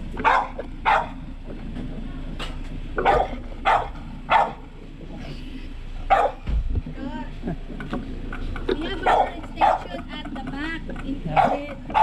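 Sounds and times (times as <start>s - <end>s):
dog barking: 0.2s - 1.2s, 3.0s - 4.6s, 6.1s - 6.4s, 9.0s - 9.9s, 11.3s - 12.0s.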